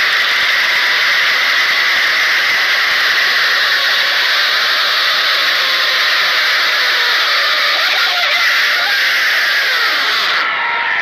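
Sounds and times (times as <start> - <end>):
crowd shouting and cheering: 9.9 - 11.0.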